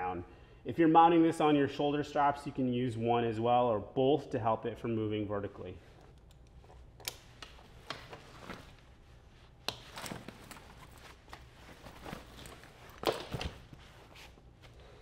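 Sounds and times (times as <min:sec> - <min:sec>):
nylon fabric rustling: 0:05.8 - 0:15.0.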